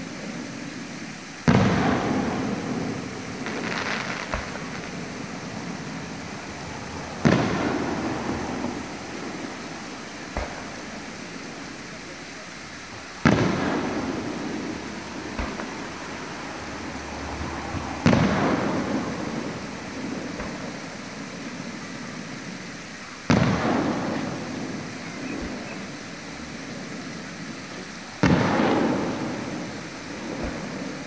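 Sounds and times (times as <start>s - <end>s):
fireworks booming: 0.0s - 31.0s
rolling echo: 0.0s - 31.0s
faint pops: 10.3s - 11.0s, 15.3s - 15.9s, 20.3s - 20.7s.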